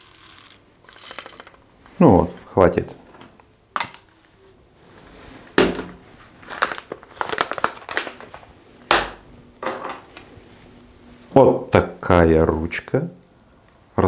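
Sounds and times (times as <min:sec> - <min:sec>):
items knocking on counter: 0:05.6 - 0:06.0
paper bag rustling and crinkling: 0:06.0 - 0:08.5.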